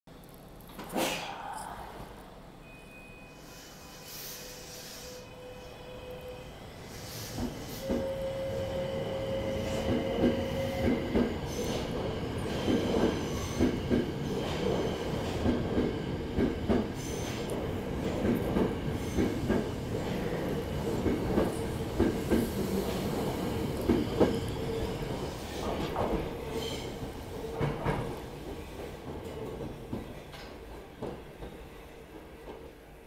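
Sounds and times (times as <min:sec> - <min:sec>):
subway train running past: 0:01.2 - 0:33.0.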